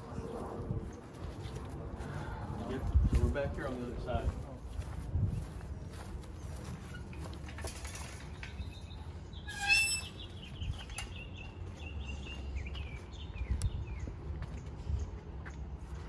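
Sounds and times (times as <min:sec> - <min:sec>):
birds chirping and calling: 0:07.9 - 0:14.1.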